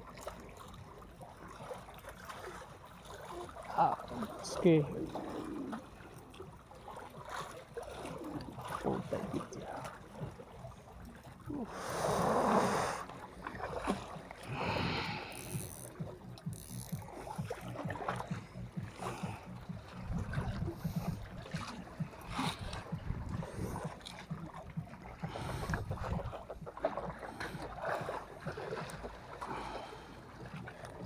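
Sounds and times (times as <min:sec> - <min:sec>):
sea water sloshing: 0:00.0 - 0:31.0
wind on microphone: 0:17.0 - 0:28.5.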